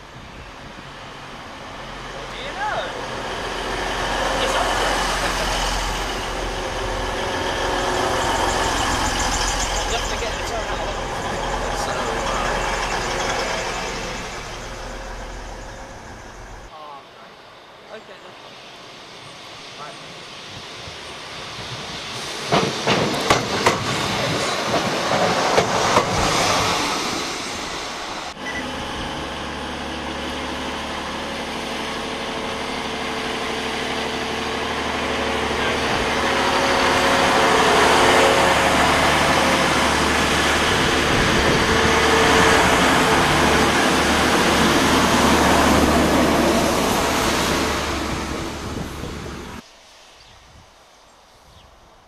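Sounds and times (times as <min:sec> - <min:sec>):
diesel train engine drone: 0:00.0 - 0:50.1
train wheels clicking over rails: 0:21.6 - 0:28.0.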